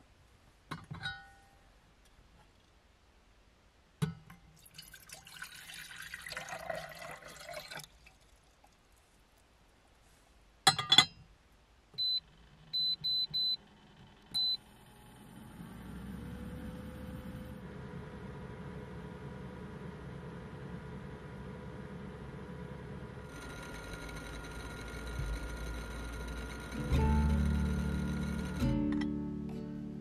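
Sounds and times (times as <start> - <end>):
water pouring into kettle: 4.6 - 8.8
cooktop humming: 19.6 - 29.7.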